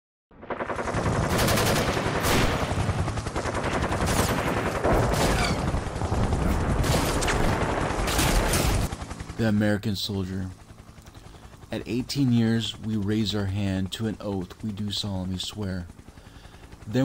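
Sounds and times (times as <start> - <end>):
rapid automatic gunfire: 0.4 - 8.9.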